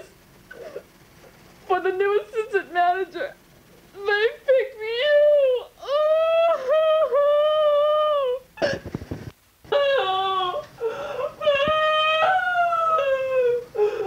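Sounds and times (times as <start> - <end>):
woman wailing and sobbing: 4.0 - 8.5, 9.7 - 14.0.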